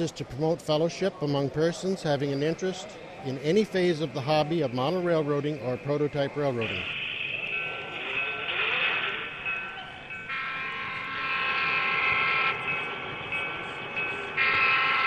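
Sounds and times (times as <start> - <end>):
multi-note train horn blasts: 10.3 - 12.8, 14.3 - 15.0.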